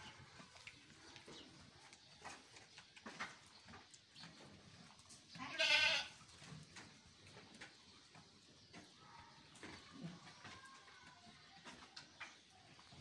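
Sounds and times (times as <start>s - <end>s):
sheep bleating: 5.4s - 6.2s.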